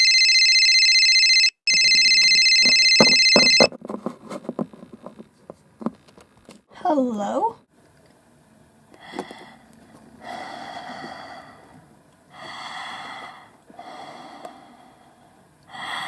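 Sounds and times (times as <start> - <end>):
heavy slow breathing: 8.9 - 16.0.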